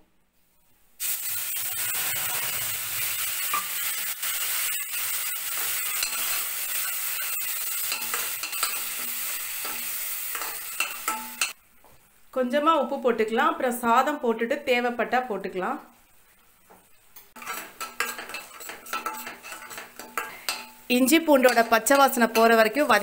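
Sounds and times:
paste sizzling in hot oil: 1.0s - 11.6s, 17.3s - 23.0s
spatula scraping a pan: 1.9s - 11.6s, 17.3s - 23.0s.

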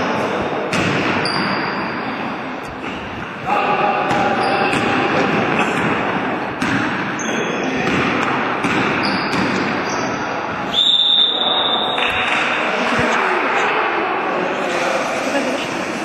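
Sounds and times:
din of gym hall: 0.0s - 16.0s
basketball bouncing: 0.7s - 1.7s, 4.0s - 7.2s, 7.8s - 9.9s
sneakers squeaking on wooden floor: 1.1s - 2.2s, 4.1s - 6.0s, 6.6s - 12.2s
referee's whistle: 9.0s - 12.0s.

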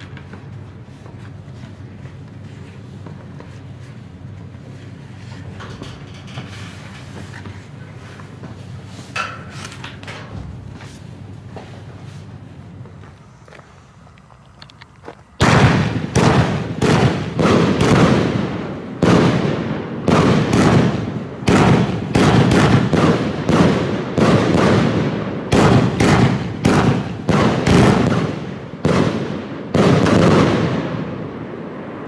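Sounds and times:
firework shots and bursts: 15.4s - 32.0s.

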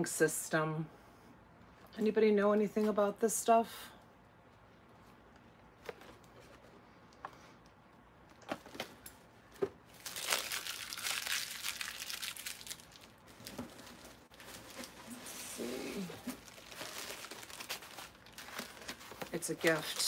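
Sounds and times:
packaging crinkling: 9.9s - 20.0s.

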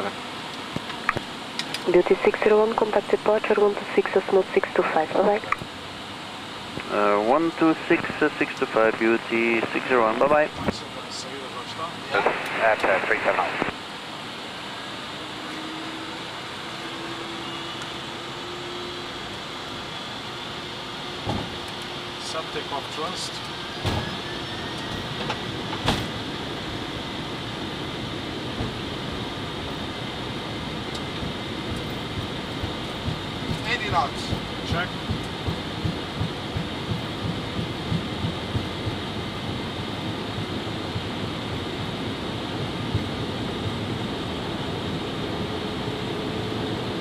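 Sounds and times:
faint steady hum: 0.0s - 11.2s, 12.1s - 23.2s
jet engines idling: 0.0s - 47.0s
wheels thumping on runway: 31.2s - 39.0s.

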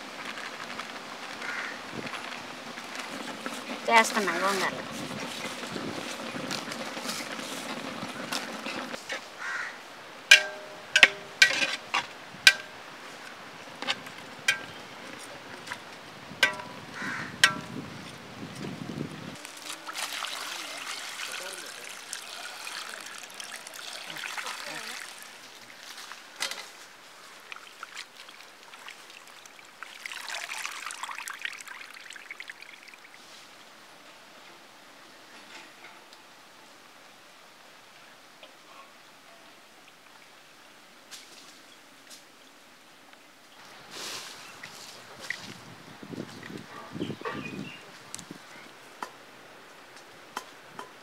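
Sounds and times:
ladle clanking in metal pot: 10.3s - 12.8s, 13.8s - 14.8s, 16.4s - 16.8s
water trickling into a bowl: 19.4s - 25.8s, 27.4s - 33.3s.

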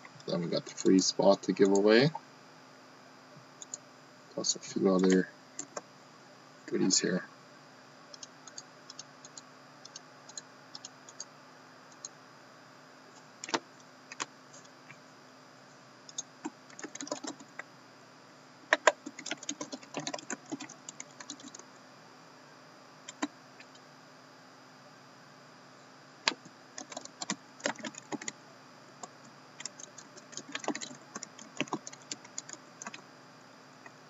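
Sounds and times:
laptop keyboard typing: 5.6s - 5.8s, 8.2s - 11.3s, 16.1s - 17.6s, 18.7s - 21.6s, 23.1s - 23.8s, 26.3s - 28.4s, 29.6s - 33.0s.

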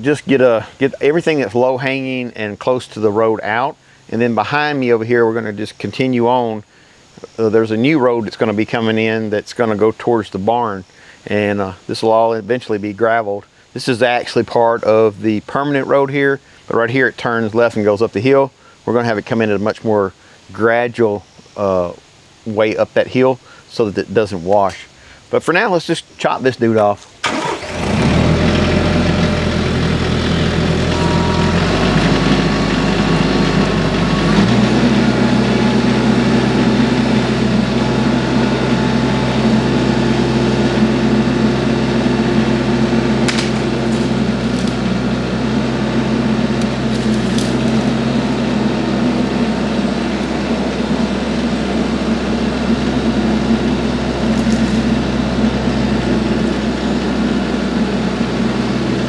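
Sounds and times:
tractor diesel engine running: 27.2s - 59.0s
wood cracking: 43.2s - 44.8s, 46.9s - 48.0s.

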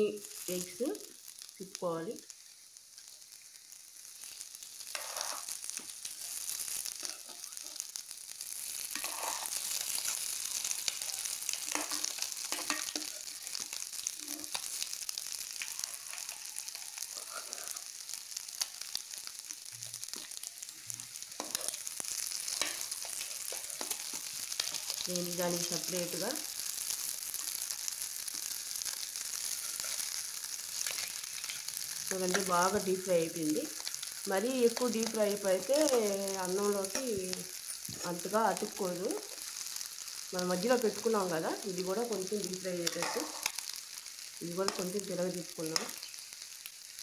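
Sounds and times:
food sizzling in a pan: 0.0s - 47.0s
steel spoon scraping a pan: 4.9s - 5.6s, 6.3s - 7.8s, 8.8s - 14.8s, 15.6s - 17.9s, 21.4s - 25.1s, 29.5s - 30.1s, 30.8s - 31.7s, 42.8s - 43.6s.

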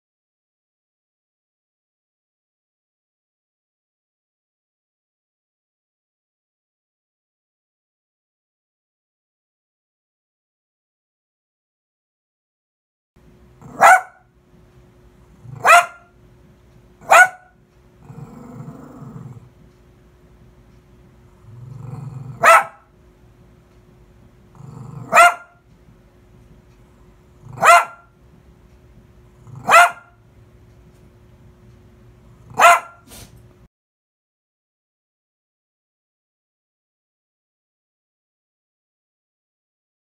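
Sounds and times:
dog growling: 13.6s - 13.8s, 15.4s - 15.8s, 18.0s - 19.5s, 21.3s - 22.8s, 24.5s - 25.4s, 27.4s - 27.9s, 29.4s - 30.0s
dog barking: 13.6s - 14.3s, 15.5s - 16.1s, 17.0s - 17.6s, 22.3s - 22.9s, 25.0s - 25.6s, 27.5s - 28.1s, 29.6s - 30.2s, 32.5s - 33.2s.

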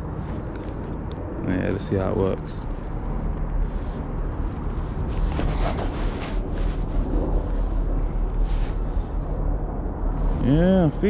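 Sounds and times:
wind rumbling on microphone: 0.0s - 11.0s
clothing rustles: 2.6s - 9.4s.

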